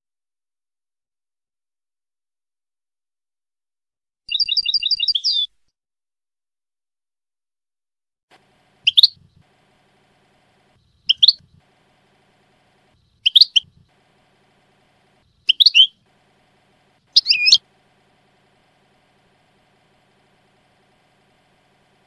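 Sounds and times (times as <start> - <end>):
finch chirping: 4.3 - 5.5, 8.8 - 9.2, 10.8 - 11.6, 13.0 - 14.0, 15.1 - 16.0, 17.0 - 17.6.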